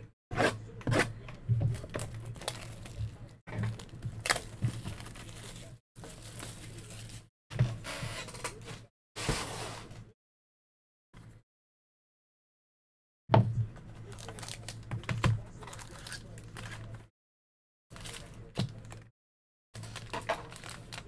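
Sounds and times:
plastic and cardboard rustling: 0:01.6 - 0:10.0, 0:19.8 - 0:21.0
shrink-wrap tearing and crinkling: 0:02.2 - 0:03.1, 0:14.1 - 0:14.9, 0:15.6 - 0:17.0, 0:19.8 - 0:21.0.

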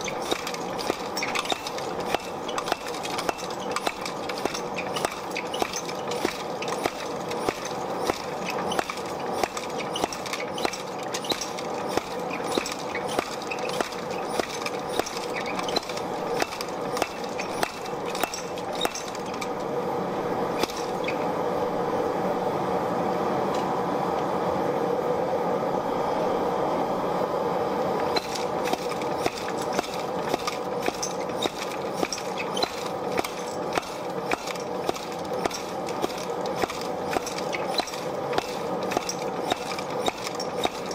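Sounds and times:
hammer striking steel on anvil: 0:00.0 - 0:19.6, 0:20.6 - 0:21.0, 0:28.2 - 0:40.9.

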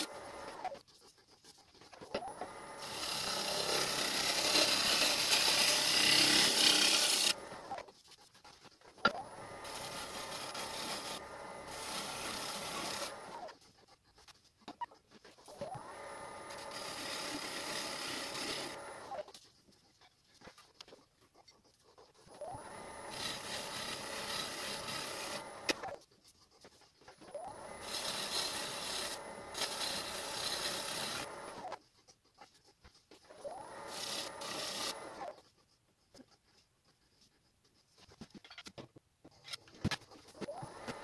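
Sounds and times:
gouge cutting wood on a lathe: 0:00.0 - 0:00.6, 0:02.3 - 0:07.7, 0:09.1 - 0:13.5, 0:15.6 - 0:19.2, 0:22.5 - 0:25.9, 0:27.5 - 0:31.8, 0:33.6 - 0:35.3.

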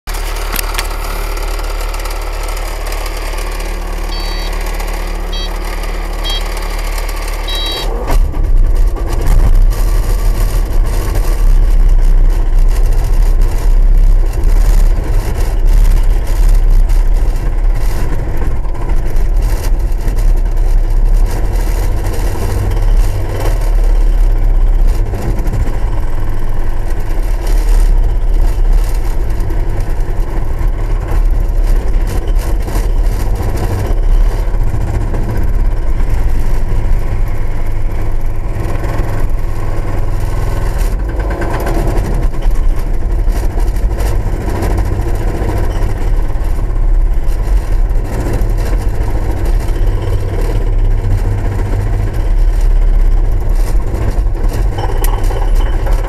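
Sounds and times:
excavator engine idling: 0:00.1 - 0:56.0
short electronic beeps: 0:00.6 - 0:07.9, 0:54.8 - 0:56.0.

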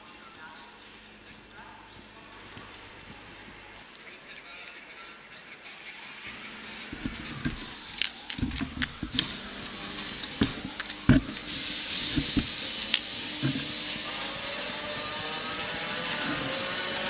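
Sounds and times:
steady hiss: 0:09.1 - 0:14.3.

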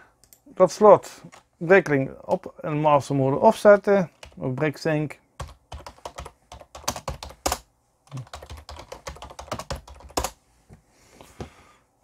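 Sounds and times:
typing on keyboard: 0:04.1 - 0:04.4, 0:05.4 - 0:10.4.

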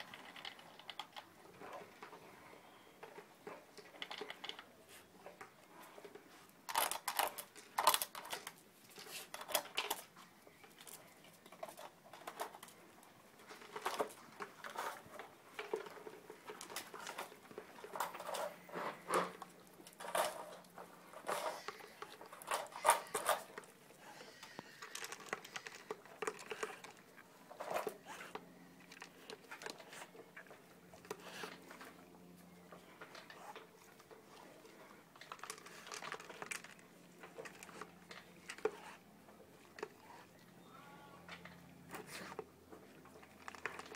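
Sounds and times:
dogs crunching dry food: 0:00.0 - 0:40.6, 0:41.2 - 0:43.9
kibble clicking on plastic: 0:03.0 - 0:04.7, 0:19.1 - 0:31.8.

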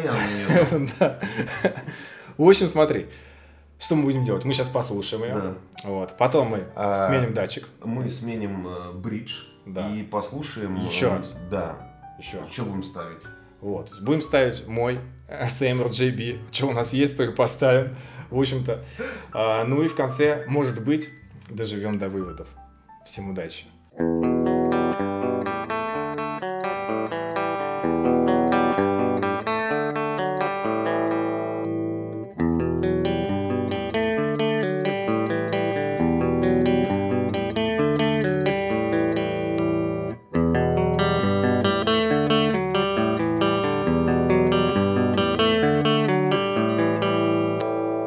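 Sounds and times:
electric guitar through amp: 0:24.0 - 0:48.0.

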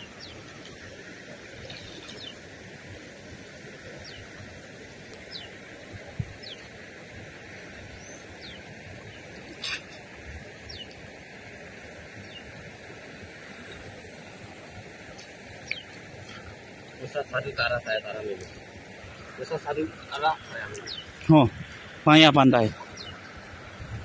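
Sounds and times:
small birds chirping: 0:00.0 - 0:00.9, 0:01.6 - 0:02.5, 0:03.8 - 0:04.4, 0:05.1 - 0:11.2, 0:12.1 - 0:12.6, 0:15.1 - 0:23.9
steady background noise: 0:00.0 - 0:24.0.

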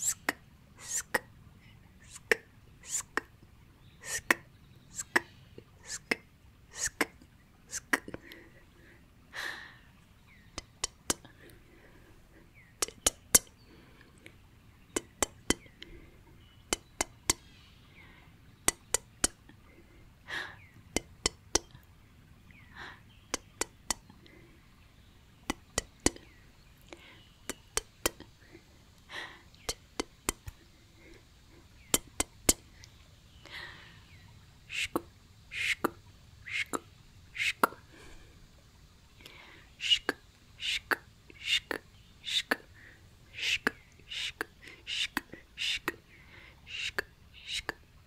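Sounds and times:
tongue and lip clicks: 0:00.0 - 0:01.3, 0:02.0 - 0:03.4, 0:04.0 - 0:08.4, 0:10.5 - 0:11.3, 0:12.8 - 0:13.5, 0:14.2 - 0:15.9, 0:16.7 - 0:17.5, 0:18.6 - 0:19.6, 0:20.9 - 0:21.9, 0:23.3 - 0:24.2, 0:25.4 - 0:26.3, 0:26.9 - 0:28.4, 0:29.0 - 0:30.7, 0:31.8 - 0:33.6, 0:34.7 - 0:37.8, 0:39.2 - 0:42.7, 0:43.4 - 0:46.0, 0:46.7 - 0:47.8
breathy puffs: 0:28.2 - 0:29.8, 0:33.4 - 0:34.9.

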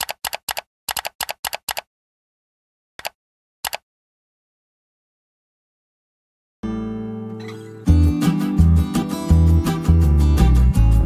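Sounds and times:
keyboard keystroke clicks: 0:00.0 - 0:01.9, 0:03.0 - 0:03.8.

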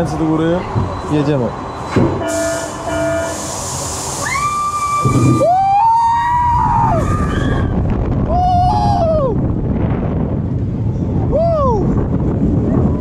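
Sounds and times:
wind rushing over microphone: 0:03.4 - 0:13.0
riders screaming: 0:04.2 - 0:09.2.

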